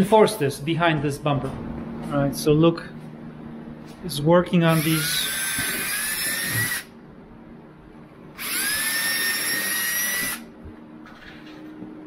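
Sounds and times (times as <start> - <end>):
cordless drill motor whine: 4.7 - 6.9, 8.4 - 10.5.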